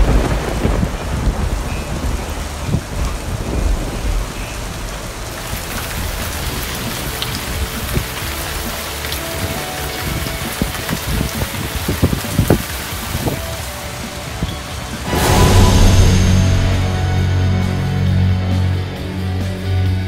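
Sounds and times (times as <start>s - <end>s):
wind gusting on microphone: 0.0s - 4.9s
heavy rain on pavement: 0.0s - 15.1s.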